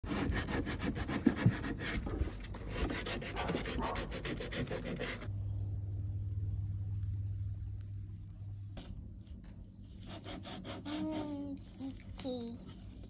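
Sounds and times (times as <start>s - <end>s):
sanding plastic by hand: 0.0s - 5.3s, 10.0s - 11.4s.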